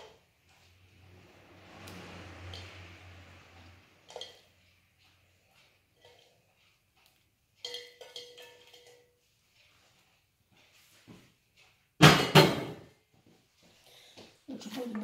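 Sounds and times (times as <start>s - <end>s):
utensils clinking on cookware: 2.3s - 9.7s, 12.0s - 12.9s.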